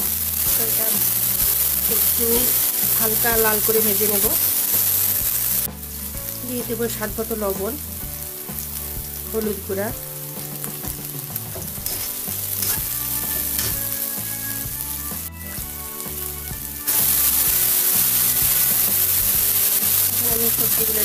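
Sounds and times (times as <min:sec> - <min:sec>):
vegetables sizzling in hot oil: 0:00.0 - 0:21.0
metal spatula stirring: 0:11.5 - 0:15.1.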